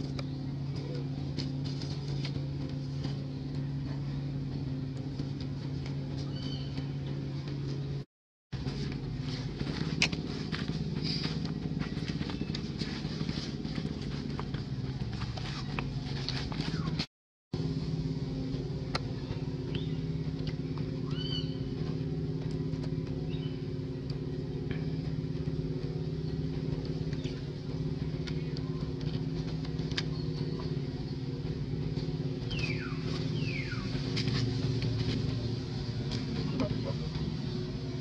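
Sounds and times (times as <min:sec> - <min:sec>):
engine humming: 0:00.0 - 0:38.0.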